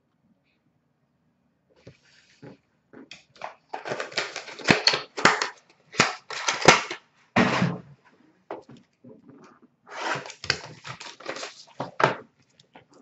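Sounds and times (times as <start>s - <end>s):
packaging crinkling: 3.1s - 7.0s, 9.9s - 13.0s.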